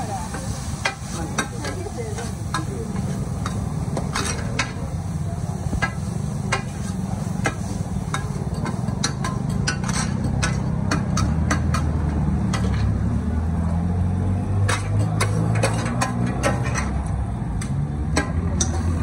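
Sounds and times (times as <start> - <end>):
metal spatulas scraping steel pan: 5.8 - 13.0, 14.6 - 17.0, 18.1 - 19.0.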